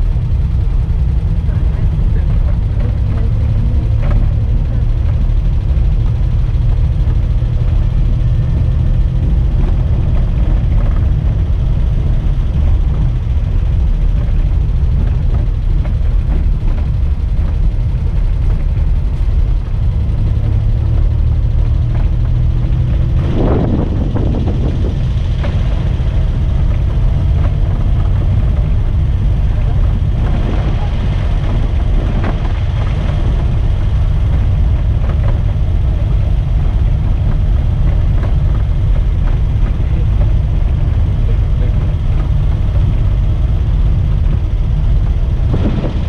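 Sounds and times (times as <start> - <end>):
car engine running: 0.0 - 46.0
low road rumble: 0.0 - 46.0.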